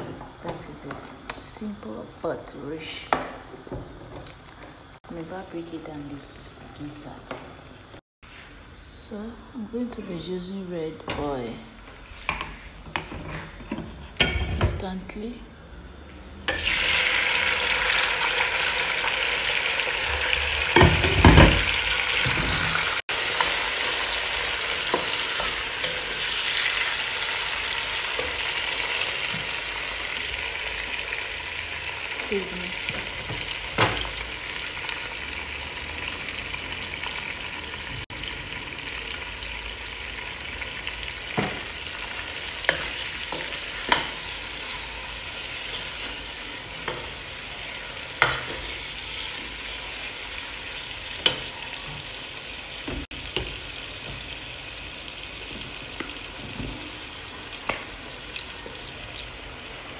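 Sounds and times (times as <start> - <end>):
food sizzling in hot oil: 16.5 - 59.9.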